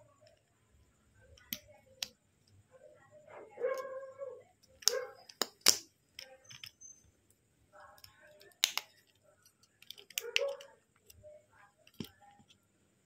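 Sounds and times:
plastic parts snapping clicks: 4.6 - 6.7, 8.0 - 11.2.

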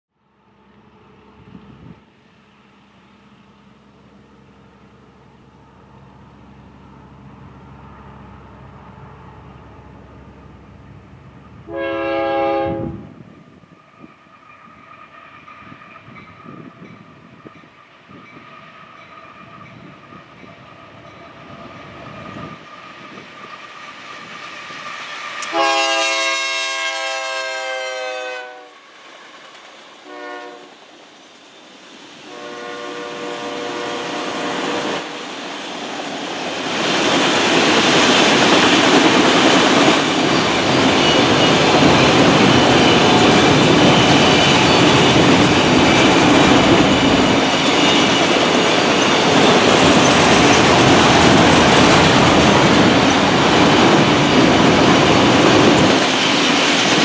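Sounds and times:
train rumbling: 0.3 - 57.0
train air horn: 11.7 - 13.2, 25.4 - 28.9, 30.0 - 30.8, 32.2 - 35.2.

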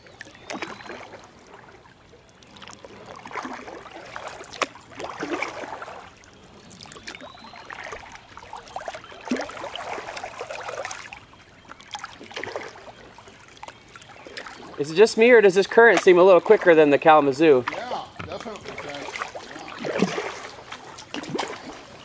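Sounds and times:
paddle splashing water: 0.0 - 22.0.

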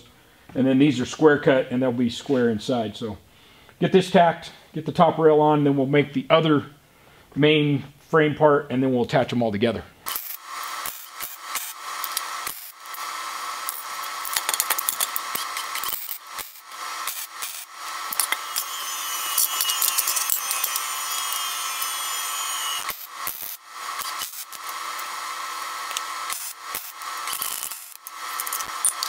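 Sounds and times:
welder sizzling crackle: 10.0 - 29.0.

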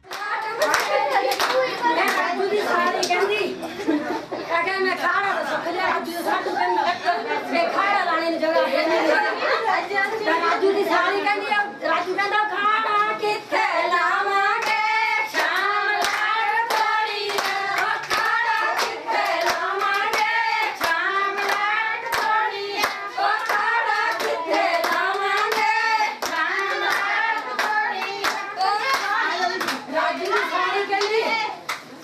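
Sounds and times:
hand clapping: 0.0 - 2.3, 14.6 - 31.9
women singing folk song: 4.5 - 31.6.

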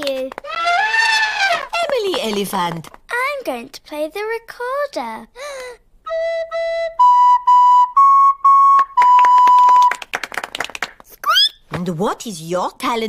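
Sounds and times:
people clapping: 0.0 - 3.3, 8.7 - 11.2
recorder playing a simple tune: 6.1 - 10.0.

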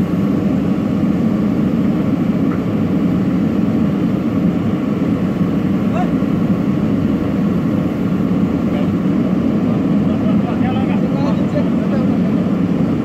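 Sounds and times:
backhoe diesel engine running: 0.0 - 13.0.

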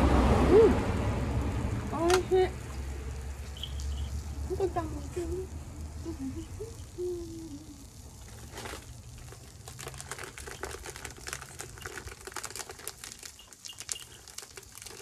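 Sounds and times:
low steady hum: 0.0 - 15.0
plastic wrapper crinkling: 7.8 - 15.0.

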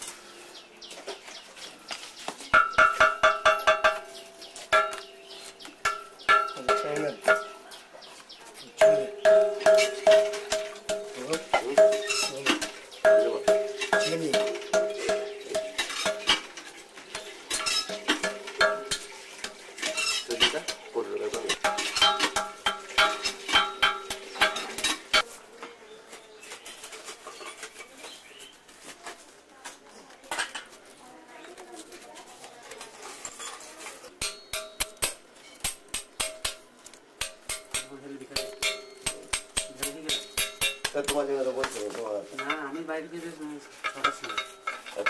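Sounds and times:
sharp metallic taps: 2.5 - 7.6, 8.8 - 16.5, 17.1 - 25.2, 34.2 - 41.8
hammer clinking on metal: 8.8 - 16.5, 37.2 - 41.2.

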